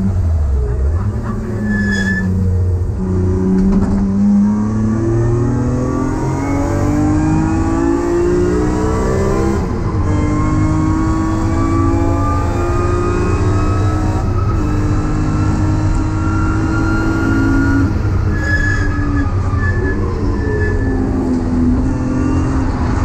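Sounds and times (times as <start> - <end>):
car engine accelerating hard: 2.3 - 18.3.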